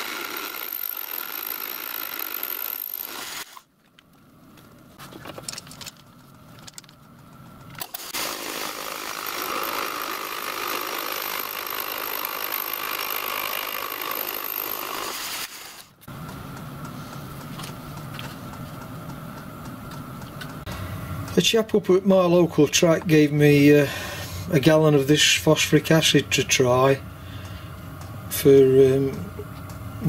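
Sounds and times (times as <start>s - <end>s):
fly cutter cutting metal: 0.0s - 3.7s, 7.8s - 16.1s
machine humming: 16.0s - 30.0s.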